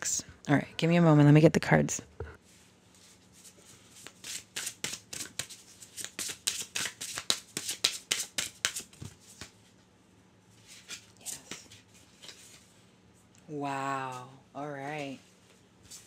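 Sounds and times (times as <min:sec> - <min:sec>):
cards being shuffled: 0:03.0 - 0:09.6.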